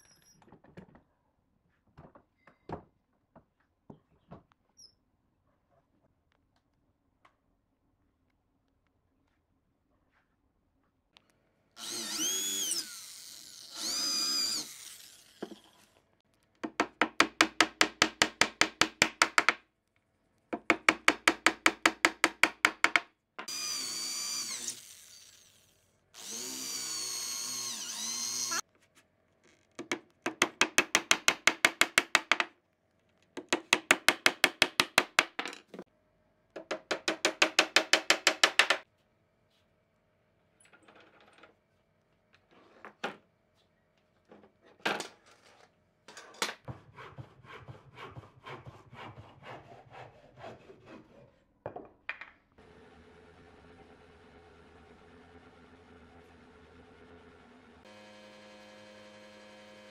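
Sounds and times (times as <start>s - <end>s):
cordless drill whining: 11.8s - 15.6s, 23.5s - 28.6s.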